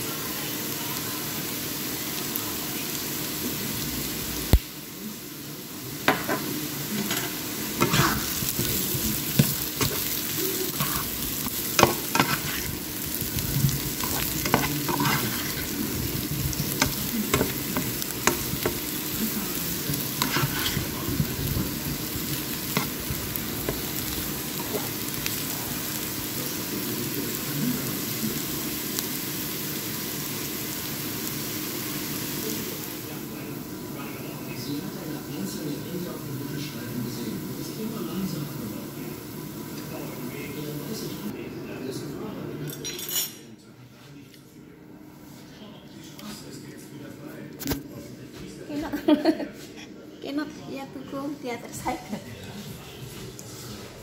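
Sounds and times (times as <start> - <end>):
potatoes sizzling in a pan: 0.0 - 42.5
spatula scraping a pan: 7.0 - 19.1, 19.7 - 21.3.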